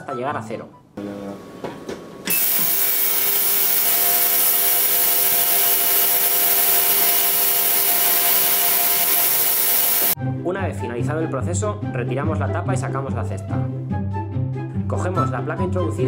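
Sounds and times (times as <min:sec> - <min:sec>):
ultrasonic cleaner hissing buzz: 0:01.0 - 0:10.2.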